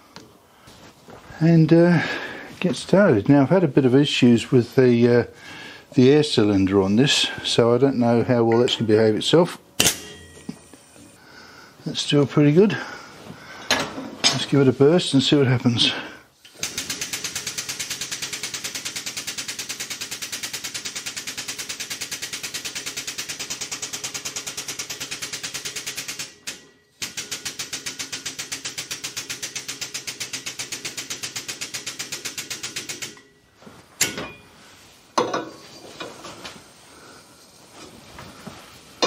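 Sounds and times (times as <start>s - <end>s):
air pump chattering: 16.4s - 33.3s.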